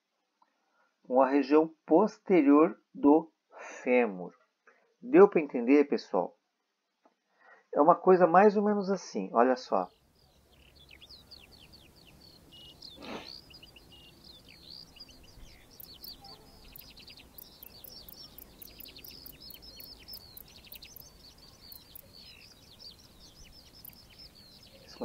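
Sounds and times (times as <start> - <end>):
small birds chirping: 9.6 - 25.0
grasshopper stridulating: 10.0 - 25.0.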